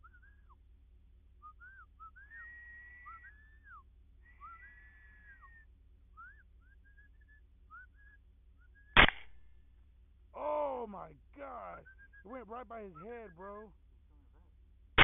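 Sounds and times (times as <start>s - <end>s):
electronic predator call wailing: 2.3s - 3.6s, 4.3s - 5.6s, 10.4s - 13.7s
rifle shot: 9.0s - 9.4s.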